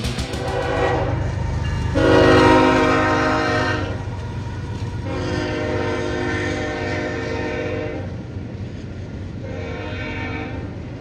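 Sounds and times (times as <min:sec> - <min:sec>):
passing train noise: 0:00.0 - 0:11.0
locomotive air horn blasts: 0:00.4 - 0:04.1, 0:05.0 - 0:08.1, 0:09.4 - 0:10.8.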